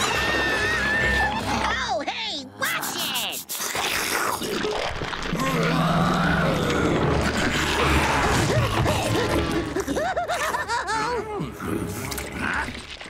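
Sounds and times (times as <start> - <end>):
dramatic cartoon music: 0.0 - 4.5, 5.3 - 12.7
cartoon monster roaring: 3.7 - 9.9.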